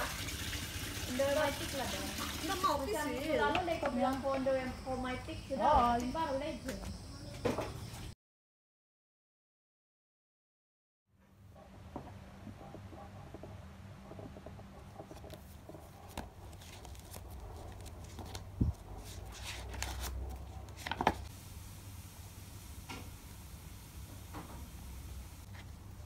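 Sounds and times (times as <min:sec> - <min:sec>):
paper pages turning and rustling: 0:15.1 - 0:21.3, 0:25.5 - 0:25.8.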